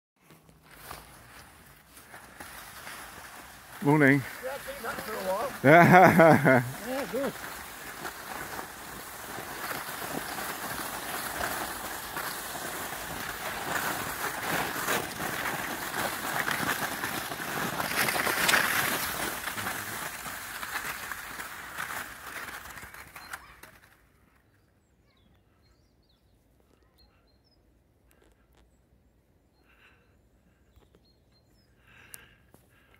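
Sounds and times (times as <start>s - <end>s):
skis scraping over snow: 0.2s - 23.6s.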